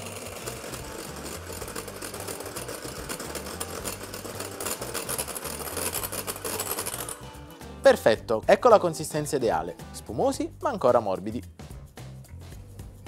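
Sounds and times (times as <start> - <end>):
rapid clicking: 0.0 - 7.4
electric hand mixer whipping: 0.0 - 8.8.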